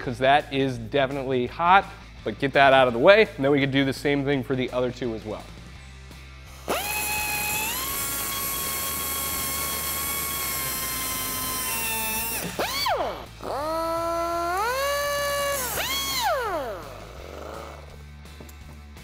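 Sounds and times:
air cutoff tool whining: 6.5s - 18.0s.

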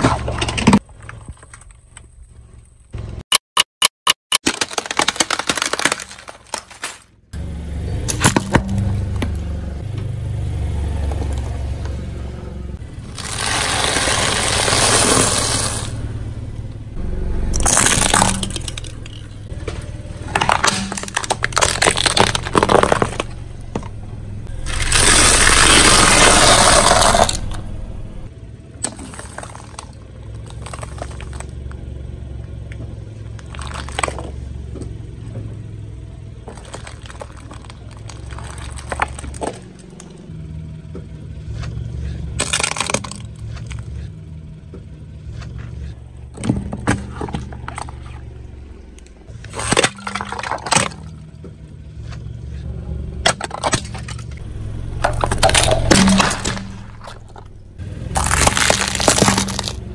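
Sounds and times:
objects cracking under wheel: 0.0s - 3.0s, 4.3s - 7.3s, 12.8s - 16.0s, 17.5s - 35.5s, 36.4s - 40.3s, 41.0s - 44.1s, 45.4s - 59.9s
car low rumble: 0.0s - 3.2s, 5.8s - 59.9s
snack crunching under tyre: 4.1s - 7.2s, 12.9s - 16.0s, 17.5s - 31.9s, 32.8s - 34.9s, 36.4s - 40.3s, 41.5s - 44.1s, 53.2s - 59.9s.

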